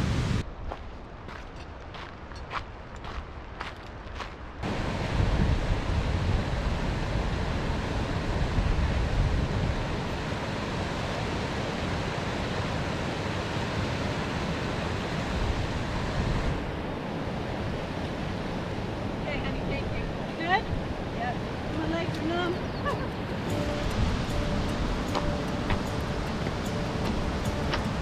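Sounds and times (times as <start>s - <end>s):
wind buffeting microphone: 0.0s - 11.0s
creek rushing over rocks: 23.3s - 28.0s.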